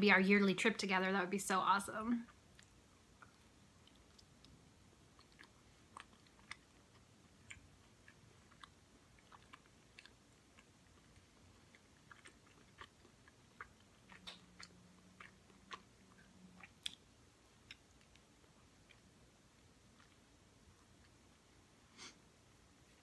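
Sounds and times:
low steady hum: 0.0 - 23.0
chewing soft pastry: 2.2 - 23.0
wet mouth clicks: 2.3 - 19.1.

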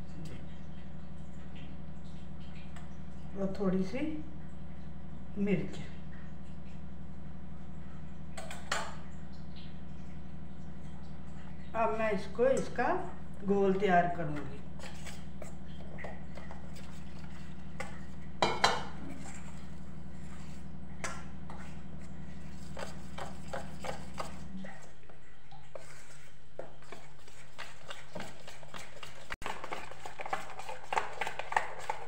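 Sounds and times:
spoon scraping batter in metal bowl: 13.7 - 24.6, 25.7 - 32.0.

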